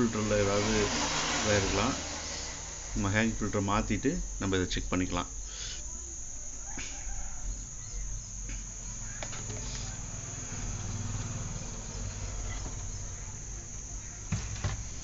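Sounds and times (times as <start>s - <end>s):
high-pitched whine: 0.0s - 15.0s
low hum: 0.0s - 15.0s.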